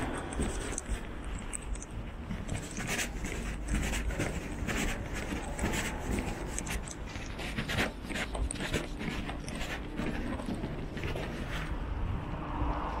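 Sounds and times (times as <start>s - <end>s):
clothing rustling: 0.0s - 11.8s
soft footsteps: 0.0s - 13.0s.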